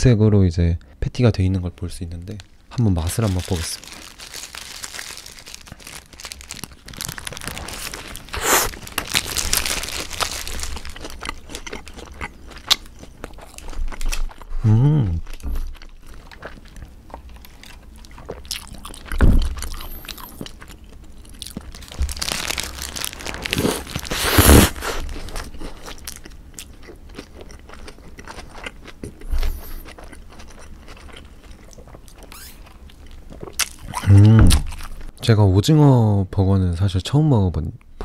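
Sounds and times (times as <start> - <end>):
crunching bite: 3.2 - 35.1
sip through a straw: 8.4 - 8.7
chewing with wet clicks: 10.6 - 14.5, 15.3 - 21.8, 25.8 - 34.0.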